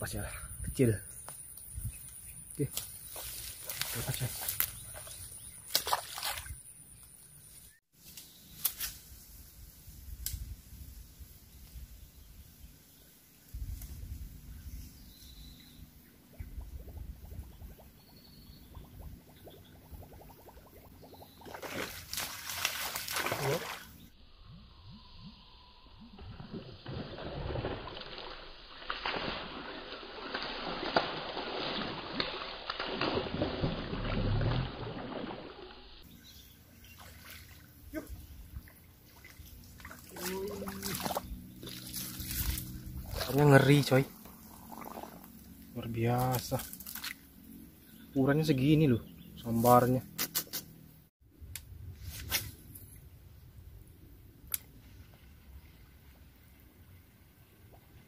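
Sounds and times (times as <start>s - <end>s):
wind rumbling on microphone: 1.6s - 2.6s, 9.4s - 12.8s, 13.4s - 21.4s, 40.8s - 45.4s
water splashing and sloshing: 3.0s - 7.2s, 18.7s - 24.1s, 26.0s - 47.3s.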